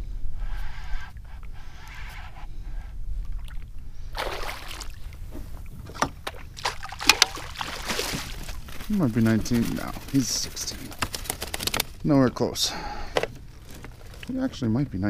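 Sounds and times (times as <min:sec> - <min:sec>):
water splashing: 0:03.2 - 0:10.3.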